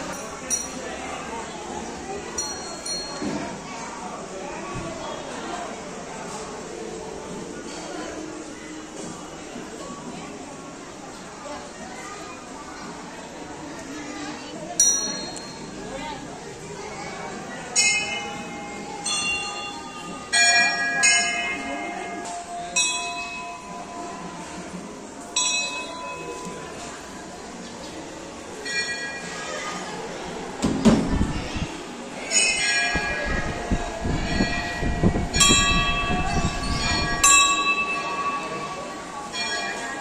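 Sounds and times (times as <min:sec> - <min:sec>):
murmur of voices: 0:00.0 - 0:40.0
temple bells ringing: 0:02.4 - 0:03.3, 0:14.8 - 0:15.8, 0:17.7 - 0:26.8, 0:28.6 - 0:29.6, 0:32.3 - 0:40.0.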